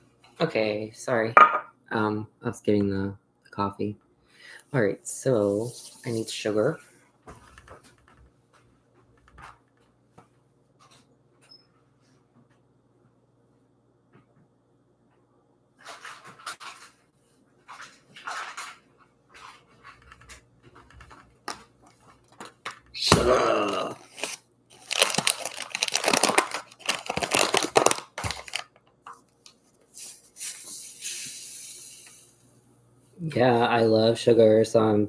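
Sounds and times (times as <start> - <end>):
paper bag rustling: 23.6 - 28.8.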